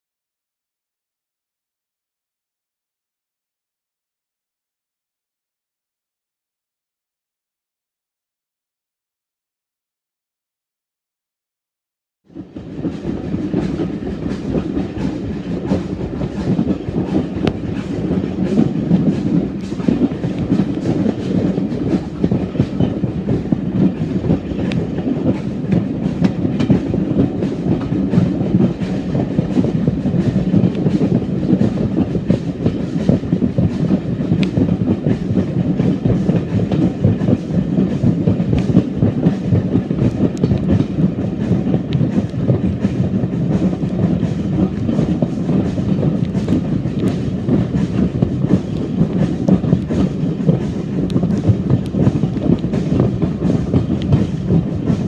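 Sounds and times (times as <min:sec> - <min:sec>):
train rumble: 0:12.3 - 0:55.0.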